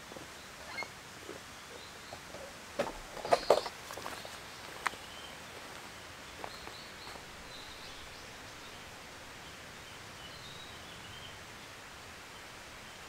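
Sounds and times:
river flowing: 0.0 - 13.0
footsteps crunching on gravel: 3.1 - 7.6.

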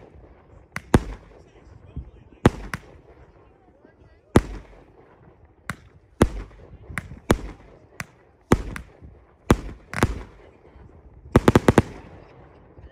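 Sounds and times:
firework bangs with echo: 0.0 - 1.5, 2.5 - 3.3, 4.4 - 10.5.

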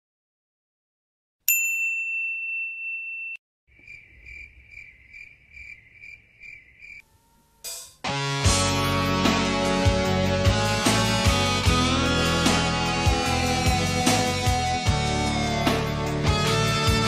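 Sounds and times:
bright ding: 1.5 - 3.4
music: 7.6 - 17.0.

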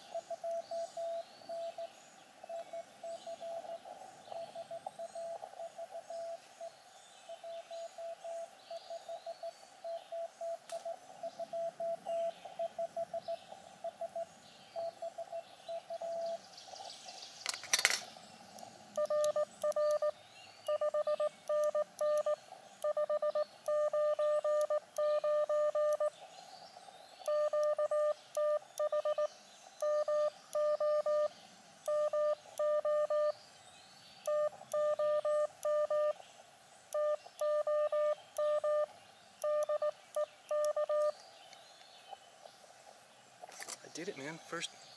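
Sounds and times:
morse code tones: 0.0 - 1.9, 2.5 - 6.4, 9.0 - 16.4, 19.0 - 26.1, 27.2 - 33.4, 34.3 - 36.2, 36.9 - 41.1
birds chirping: 0.0 - 44.9.

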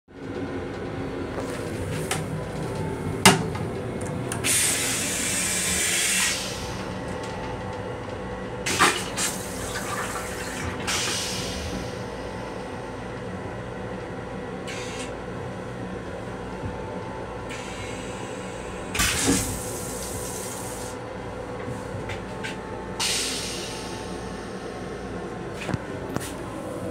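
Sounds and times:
railcar low rumble: 0.1 - 26.9
toilet flush click: 8.7 - 12.0, 18.9 - 20.9.

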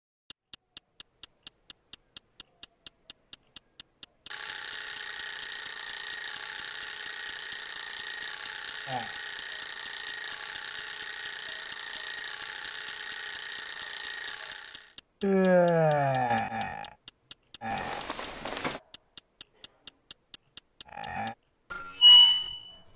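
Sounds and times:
alarm clock ticking: 0.3 - 21.4
alarm clock ringing: 4.3 - 15.0.

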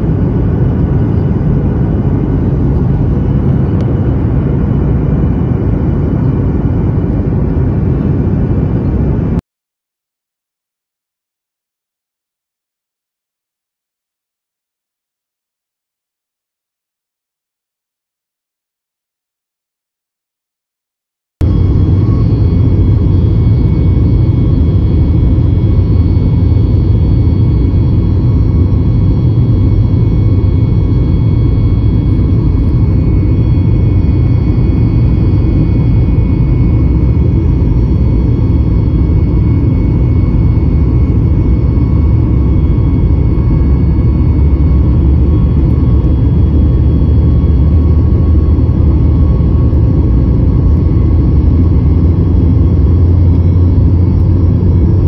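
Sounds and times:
faint steady whining tones: 0.0 - 9.4, 21.4 - 55.0
jet engine deep rumble: 0.0 - 9.4, 21.4 - 55.0.

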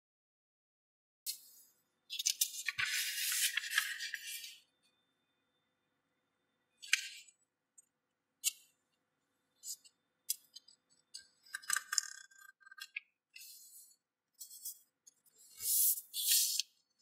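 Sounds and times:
paper rustling and crinkling: 2.2 - 4.6.

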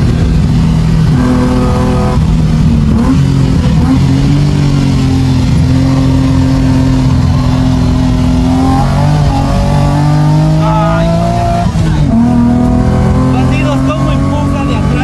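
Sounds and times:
race car engine from inside: 0.0 - 15.0.

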